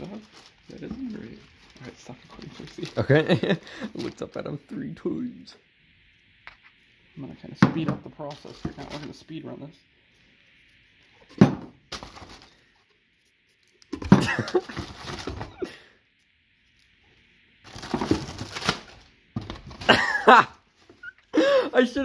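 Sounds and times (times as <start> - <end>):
plastic packing crinkling: 0.0 - 4.5, 8.2 - 9.2, 11.9 - 12.7, 17.6 - 20.1.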